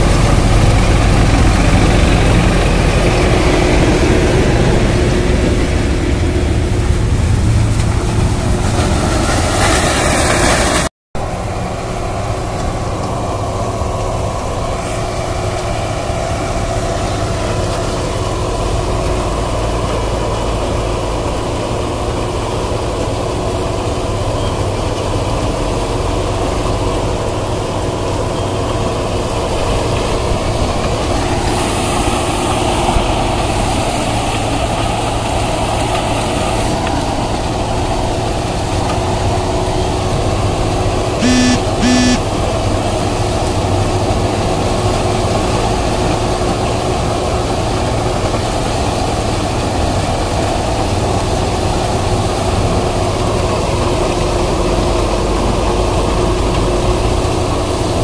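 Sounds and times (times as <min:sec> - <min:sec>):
heavy diesel machinery running: 0:00.0 - 0:58.0.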